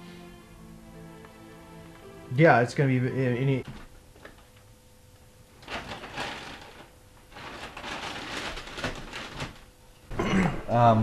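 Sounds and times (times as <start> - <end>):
rustling handling noise: 5.5 - 9.7.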